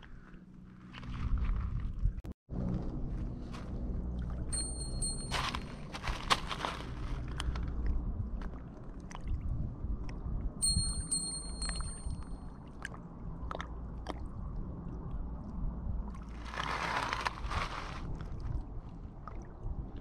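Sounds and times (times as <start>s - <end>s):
wind rumble on microphone: 0.0s - 20.0s
bite-alarm bell jingling: 4.6s - 5.8s, 10.6s - 12.4s.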